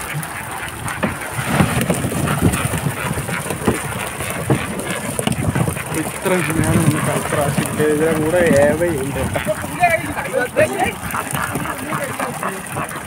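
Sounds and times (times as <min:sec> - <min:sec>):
fish flapping and slapping: 0:00.0 - 0:13.0
wet net rustling: 0:00.1 - 0:13.0.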